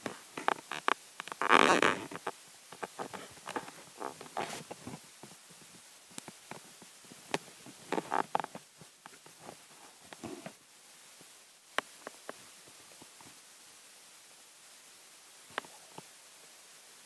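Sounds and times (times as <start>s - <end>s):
rustling: 0.0s - 13.5s.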